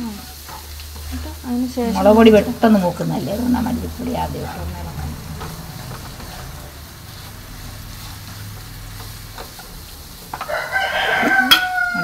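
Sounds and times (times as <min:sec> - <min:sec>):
faint frying sizzle: 0:00.0 - 0:12.0
spatula stirring in pan: 0:00.0 - 0:12.0
rooster crowing: 0:10.3 - 0:12.0.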